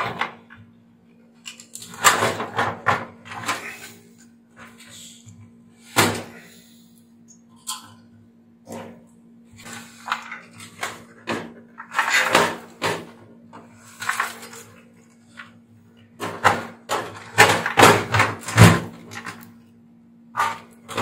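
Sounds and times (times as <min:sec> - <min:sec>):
heater casing knocking and rattling: 0:16.2 - 0:19.4.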